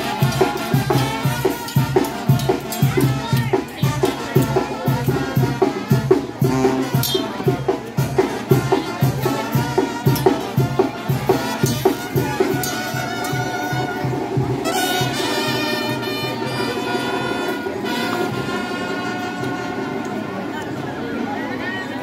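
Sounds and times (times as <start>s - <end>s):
drum beat: 0.0s - 16.9s
live band with brass: 0.0s - 22.0s.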